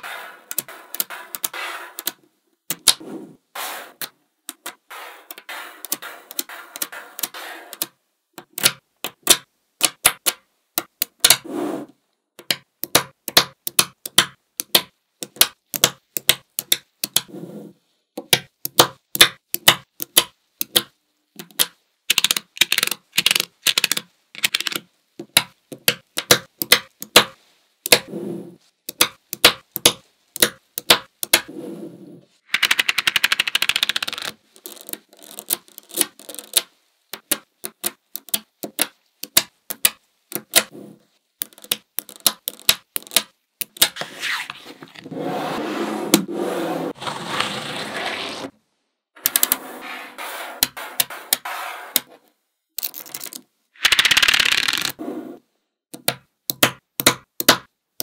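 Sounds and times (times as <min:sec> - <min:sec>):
magnetic balls clicking together: 0:00.0 - 0:03.0, 0:18.2 - 0:28.1, 0:32.5 - 0:40.7, 0:41.4 - 0:44.0, 0:52.8 - 0:55.0, 0:55.9 - 0:57.7.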